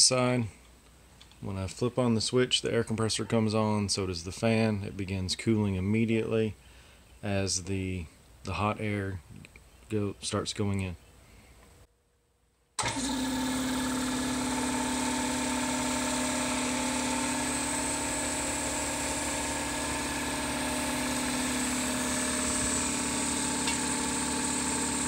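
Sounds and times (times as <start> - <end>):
air compressor running: 12.8 - 25.0
radiator fan blowing: 12.8 - 25.0.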